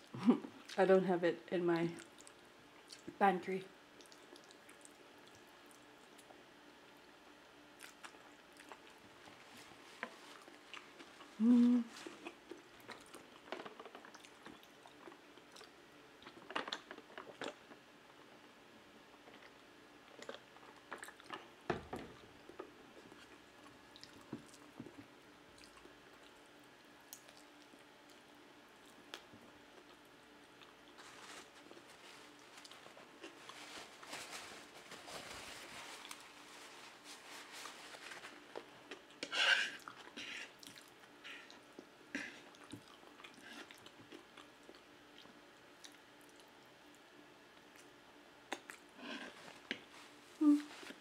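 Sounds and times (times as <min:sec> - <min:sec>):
chewing with wet mouth clicks: 0:02.0 - 0:03.2, 0:04.0 - 0:06.4, 0:07.8 - 0:09.0, 0:12.1 - 0:17.8, 0:27.1 - 0:31.0, 0:38.5 - 0:46.6, 0:47.6 - 0:48.9
person humming: 0:11.4 - 0:12.0, 0:50.4 - 0:50.9.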